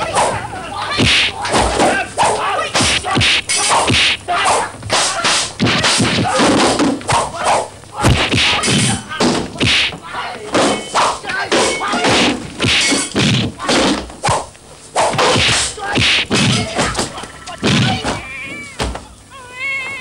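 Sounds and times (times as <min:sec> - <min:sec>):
whacks and thuds of strikes: 0:00.0 - 0:18.2
whooshes of swung blows: 0:01.0 - 0:08.8, 0:09.6 - 0:10.0, 0:12.1 - 0:16.8.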